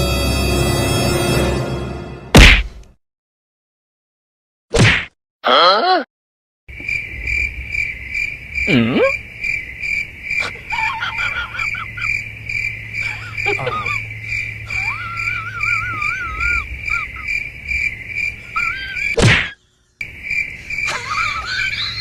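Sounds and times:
crickets trilling: 6.7s - 22.0s.

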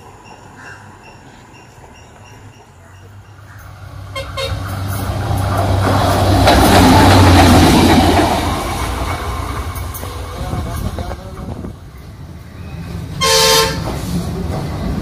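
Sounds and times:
rail bus engine hum: 0.0s - 15.0s.

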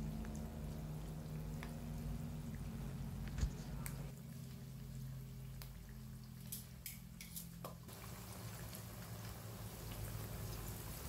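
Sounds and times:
fish frying in hot oil: 0.0s - 3.2s, 4.2s - 11.0s
low steady hum: 0.0s - 11.0s.

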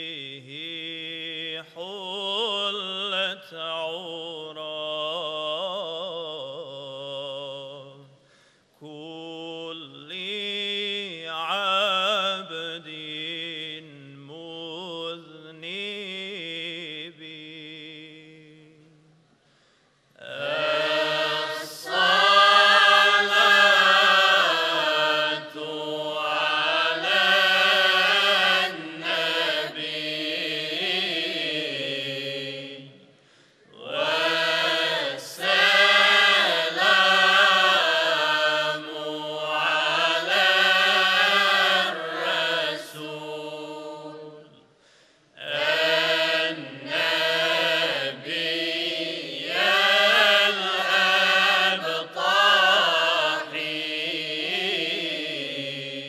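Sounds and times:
mixed choir singing: 20.2s - 33.0s, 33.7s - 44.6s, 45.4s - 56.0s.

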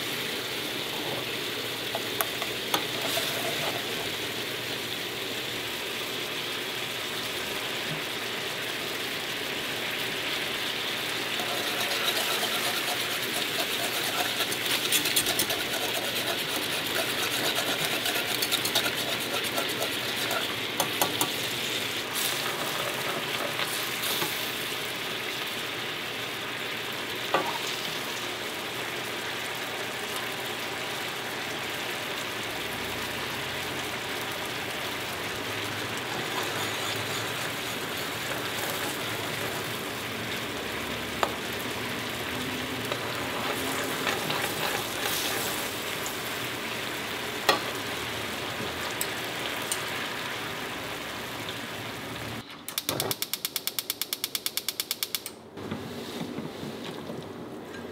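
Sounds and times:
sauce boiling in a frying pan: 0.0s - 52.4s
metal whisk clicking on pan: 52.8s - 55.3s.

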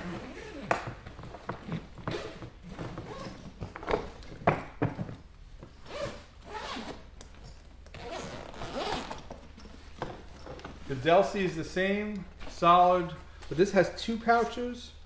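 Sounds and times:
suitcase zipper pulled: 7.9s - 9.4s.

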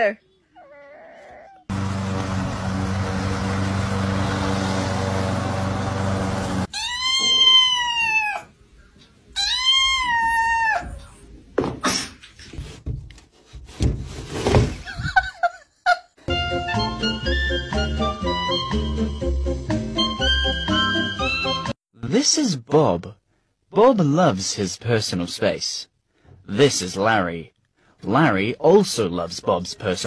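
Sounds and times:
lawn mower engine running: 1.7s - 6.7s
kitten meowing: 6.7s - 8.5s, 9.4s - 11.2s.

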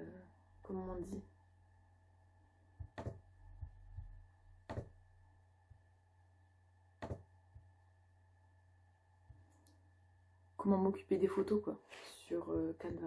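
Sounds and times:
faint electrical hum: 0.0s - 13.0s
soft low thumps: 2.7s - 5.9s.

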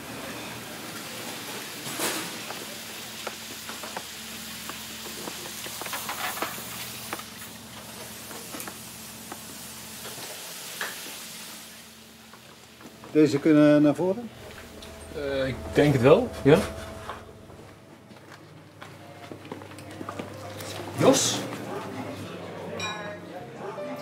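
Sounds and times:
food sizzling: 0.0s - 17.7s
kitchen hum: 0.1s - 23.8s
clatter of plates and utensils: 1.8s - 2.6s, 5.2s - 6.8s, 22.7s - 23.2s.

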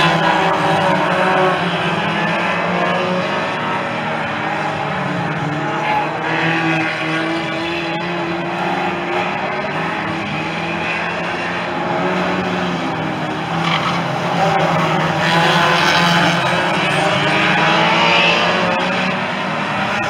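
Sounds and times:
race car engines: 0.0s - 20.0s.

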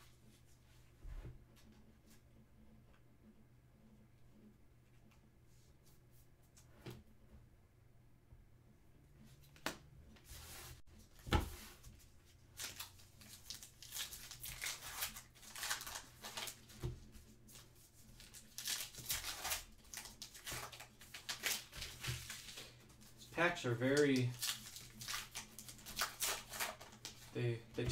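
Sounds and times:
wrapper tearing and rustling: 12.6s - 16.8s, 17.6s - 22.7s, 23.6s - 27.3s.

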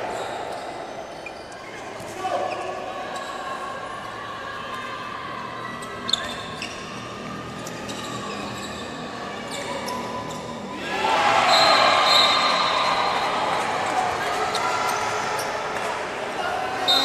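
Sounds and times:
shoes squeaking on floor: 0.0s - 3.4s, 5.7s - 10.7s
people shouting: 10.8s - 14.2s.

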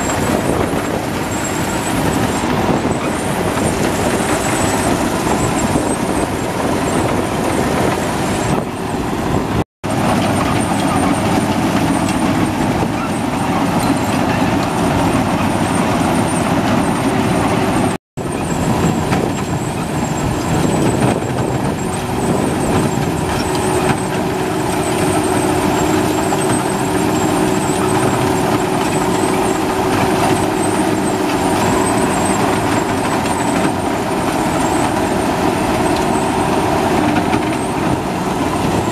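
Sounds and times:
combine harvester running: 0.0s - 38.9s.

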